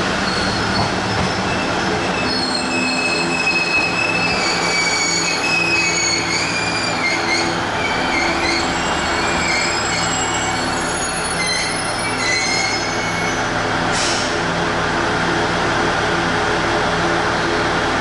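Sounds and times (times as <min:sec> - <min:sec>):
train wheels squealing on rails: 0:00.0 - 0:14.4.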